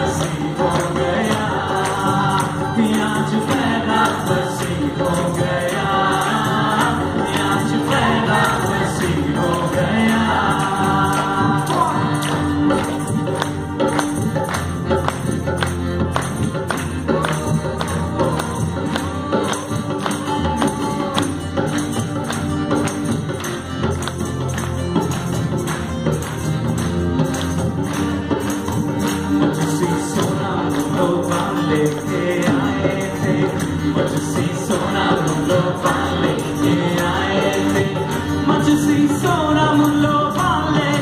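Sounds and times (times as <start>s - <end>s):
group vocals singing: 0.0s - 14.0s, 16.4s - 21.8s, 29.0s - 41.0s
band playing guitars and drums: 0.0s - 41.0s.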